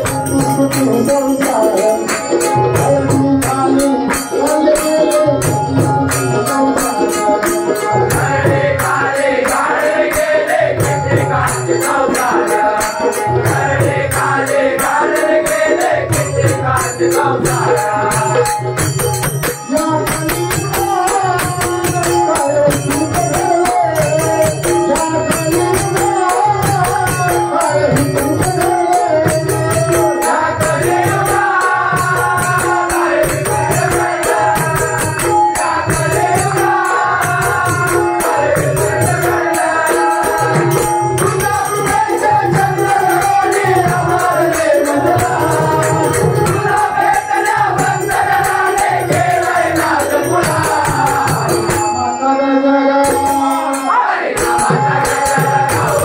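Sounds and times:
person singing: 0.0 - 18.4
jingling percussion: 0.0 - 56.0.

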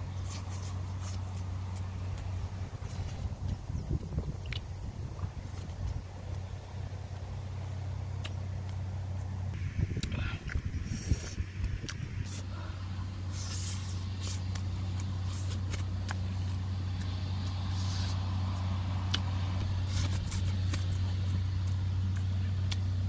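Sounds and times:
low motor hum: 0.0 - 23.0
lip-smacking and mouth clicks: 14.2 - 19.3, 19.9 - 23.0.

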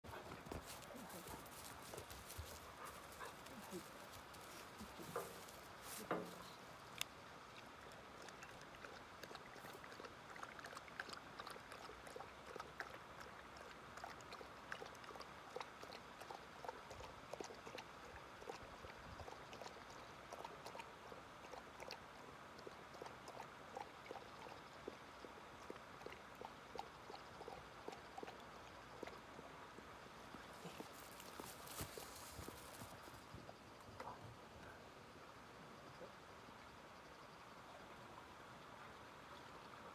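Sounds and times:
dog lapping water: 7.6 - 29.3.

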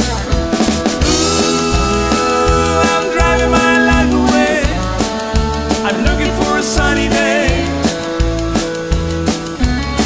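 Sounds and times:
country-rock band playing: 0.0 - 10.0.

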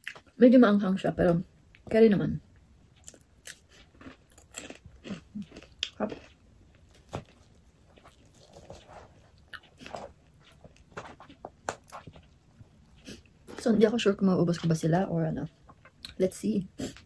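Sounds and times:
chewing and mouth smacking: 2.9 - 13.6.

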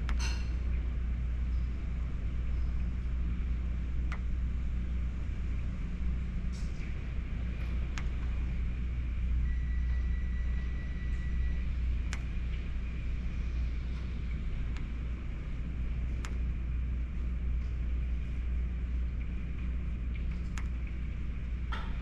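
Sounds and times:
thin whistle: 9.4 - 11.6.

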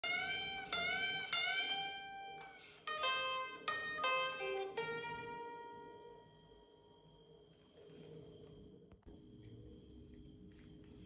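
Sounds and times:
guitar string scratching: 0.0 - 5.3.

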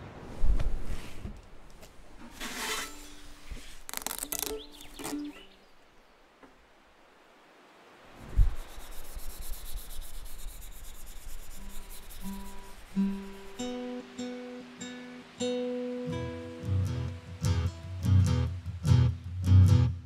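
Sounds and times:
bow hair rubbed with rosin: 8.4 - 13.6
acoustic guitar notes plucked: 12.5 - 20.0.

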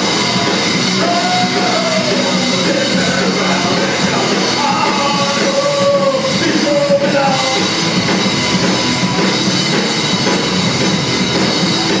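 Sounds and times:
drum kit: 0.0 - 12.0
electric guitars: 0.0 - 12.0.

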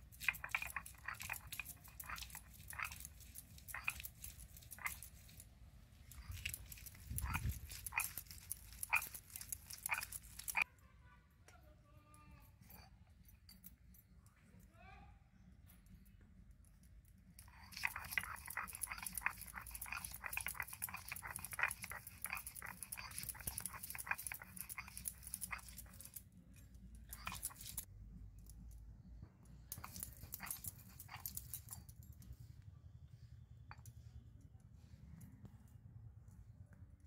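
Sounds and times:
stone grinding on stone: 0.0 - 10.7, 17.4 - 27.9, 29.7 - 31.9.

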